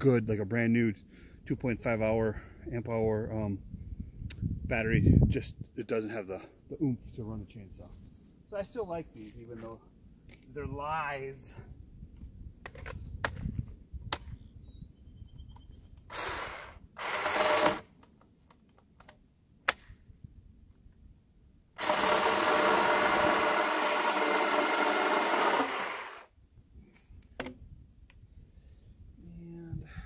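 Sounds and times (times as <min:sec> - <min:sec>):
electric chainsaw cutting wood: 0:16.1 - 0:17.9, 0:21.8 - 0:26.3.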